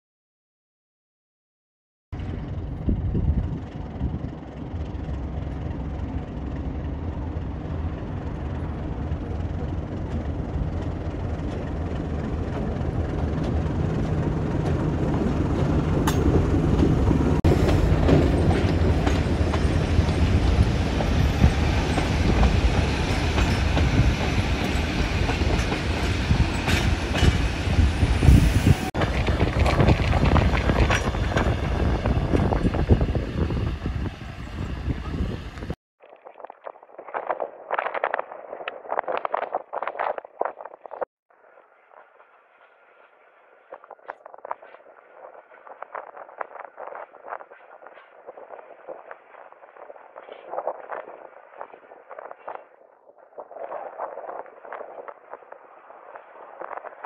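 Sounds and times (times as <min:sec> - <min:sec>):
diesel locomotive engine drone: 0:02.2 - 0:35.8
train wheels clicking on rail joints: 0:09.5 - 0:35.7.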